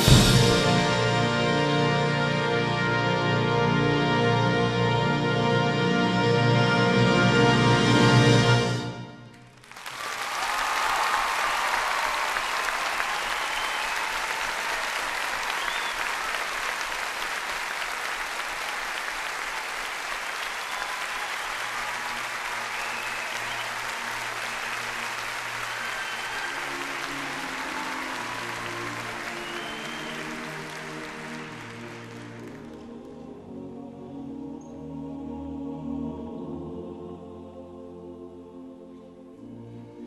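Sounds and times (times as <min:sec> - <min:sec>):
brass ensemble chord: 0:00.0 - 0:09.4, 0:21.6 - 0:40.0
audience applause: 0:09.4 - 0:33.0
cheers: 0:09.6 - 0:32.7.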